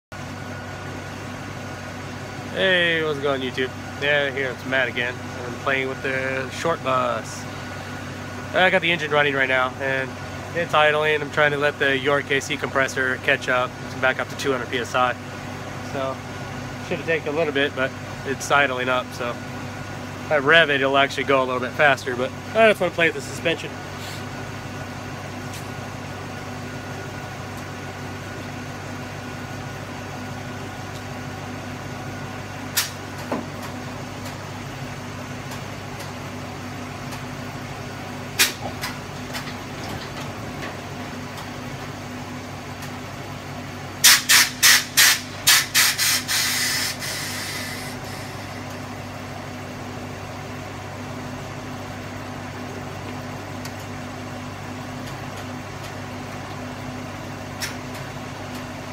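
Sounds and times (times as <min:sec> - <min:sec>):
bus engine idling: 0:00.1 - 0:58.9
air suspension blasts: 0:44.0 - 0:48.7.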